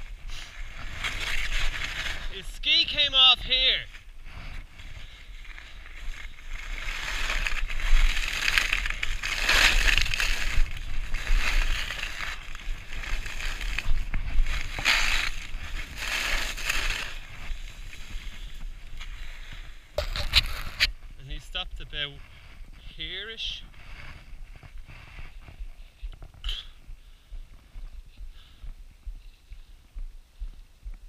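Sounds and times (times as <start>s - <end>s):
skis scraping on snow: 0.0s - 26.0s.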